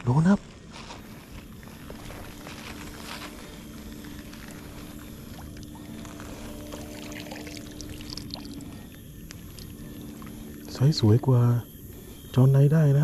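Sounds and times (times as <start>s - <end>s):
steady low hum: 0.0s - 13.0s
shallow water sloshing and pouring: 1.3s - 10.8s
faint splashes: 3.8s - 10.8s.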